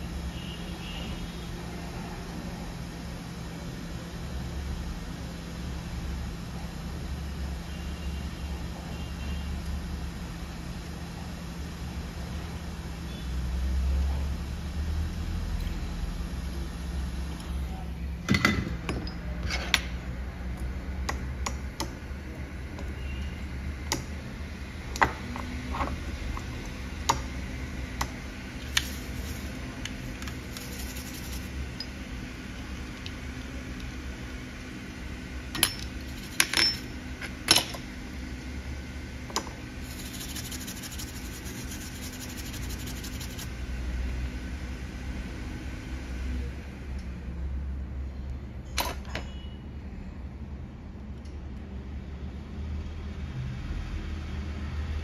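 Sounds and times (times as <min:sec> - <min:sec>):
steady low hum: 0:00.0 - 0:48.6
metal tools clicking and tapping: 0:35.6 - 0:36.9.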